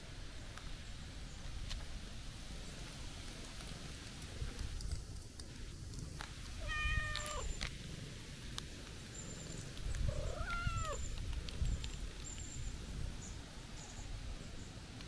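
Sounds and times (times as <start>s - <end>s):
cat meowing: 6.6s - 7.5s, 10.1s - 11.0s.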